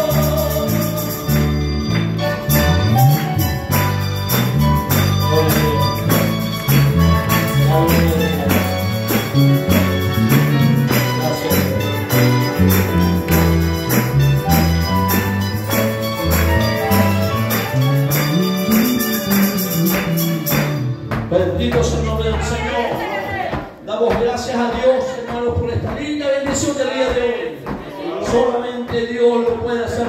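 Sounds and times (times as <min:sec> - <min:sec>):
mandolins playing a hymn: 0:00.0 - 0:22.2
bass line: 0:00.0 - 0:23.1.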